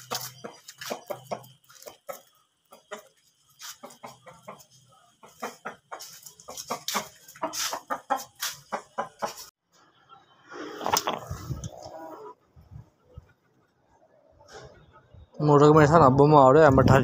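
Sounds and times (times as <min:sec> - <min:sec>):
rooster clucking: 0:00.0 - 0:09.5, 0:10.5 - 0:13.4.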